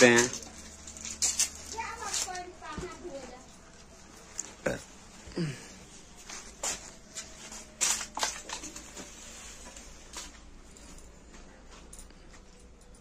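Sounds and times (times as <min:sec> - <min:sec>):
rustling of handled objects: 0:00.0 - 0:13.0
clicks of objects being handled: 0:06.6 - 0:12.9.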